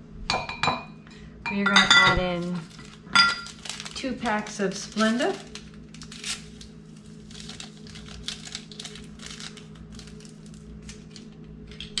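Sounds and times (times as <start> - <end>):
low steady hum: 0.0 - 12.0
paper packets crinkling and tearing: 2.3 - 11.7.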